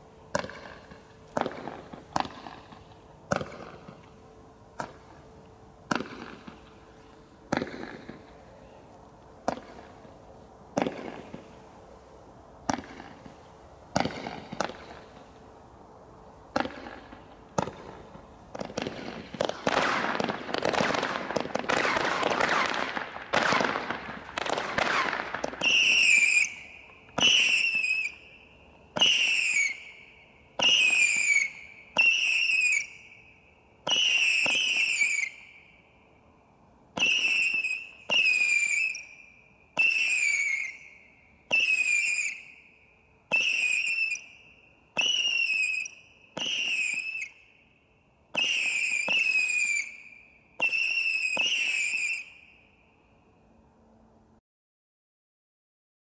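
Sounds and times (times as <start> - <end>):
crackling fireworks: 0.0 - 35.8, 36.9 - 47.6, 48.3 - 52.6
firework launch cracks: 0.3 - 4.0, 10.7 - 11.5, 12.6 - 15.2, 16.5 - 28.2, 29.0 - 29.9, 33.8 - 35.4, 50.6 - 52.3
high whistle of firework: 16.5 - 53.5.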